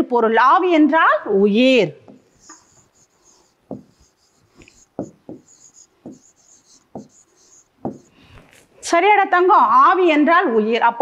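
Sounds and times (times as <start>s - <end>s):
pen scratching on glass board: 2.0s - 8.2s.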